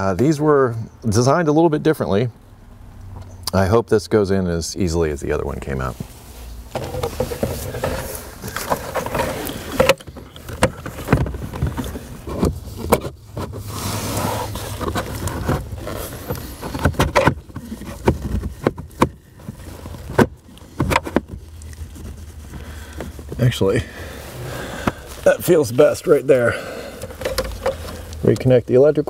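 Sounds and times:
plastic knocks clicks and scrapes: 6.7s - 13.7s, 14.5s - 23.4s, 27.0s - 28.5s.

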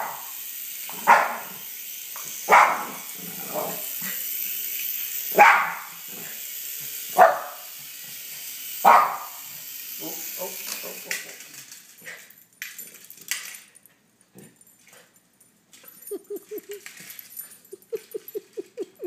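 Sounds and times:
toy helicopter rotor buzz: 0.0s - 12.3s
small dog barking: 1.0s - 1.5s, 2.5s - 3.8s, 5.3s - 5.9s, 7.2s - 7.6s, 8.8s - 9.4s.

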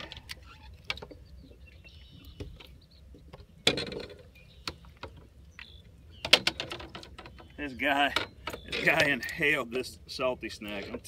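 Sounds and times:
fish handling knocks and clicks: 2.3s - 9.4s.

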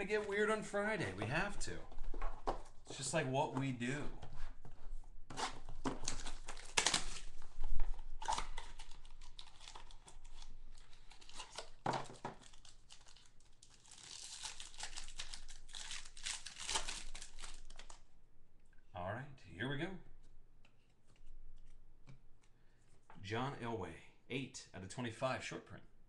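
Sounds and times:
plastic wrapper crinkling: 5.6s - 18.0s.

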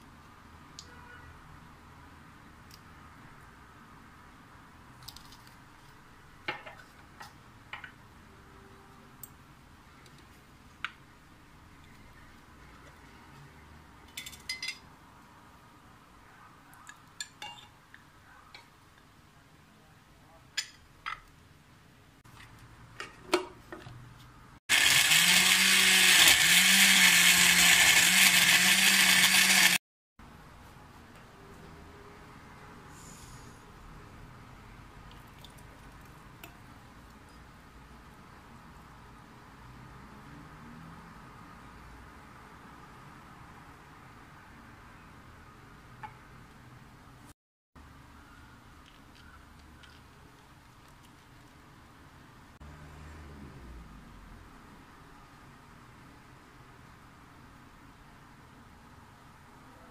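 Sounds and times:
blender motor whirring: 24.7s - 29.8s.

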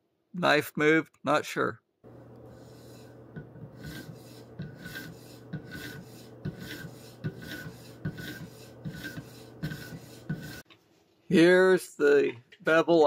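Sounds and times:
ceramic hone scraping knife edge: 2.4s - 10.7s.

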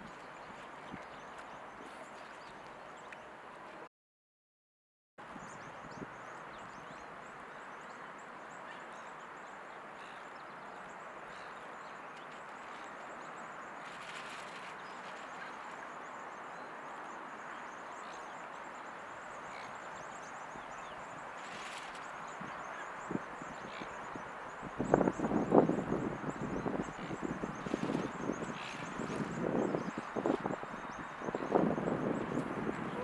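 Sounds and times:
small birds chirping: 5.4s - 33.0s
brief rustle: 13.8s - 15.8s, 21.4s - 22.1s.

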